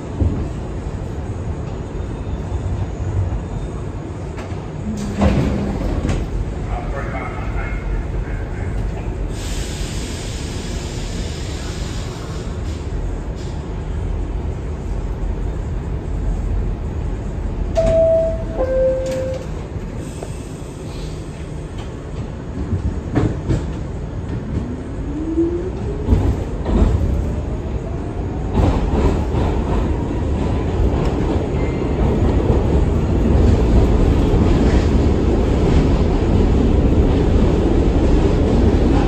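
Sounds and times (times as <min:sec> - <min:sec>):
train running rumble: 0:00.0 - 0:39.0
subway car motor whine: 0:00.2 - 0:28.5.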